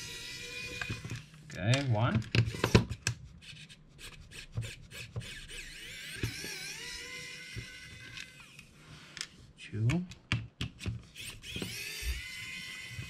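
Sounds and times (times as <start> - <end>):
screwdriver clicking and scraping: 0.0 - 9.3, 10.7 - 13.0
screw squeaking: 2.4 - 8.6.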